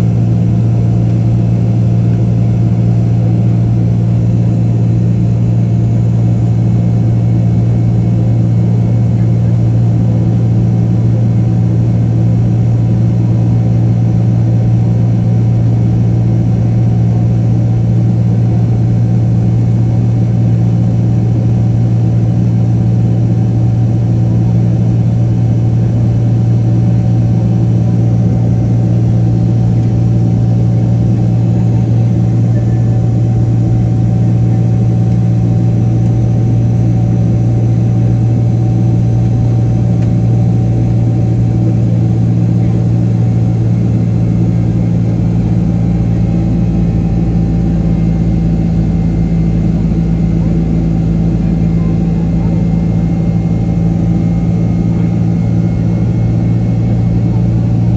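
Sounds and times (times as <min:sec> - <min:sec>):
jet engine drone: 0:15.4 - 0:57.9.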